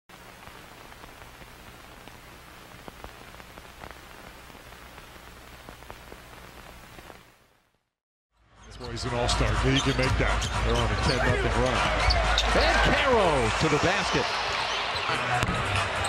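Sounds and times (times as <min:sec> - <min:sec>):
static hiss: 0:00.1 - 0:07.9
crackling clicks: 0:02.8 - 0:07.4.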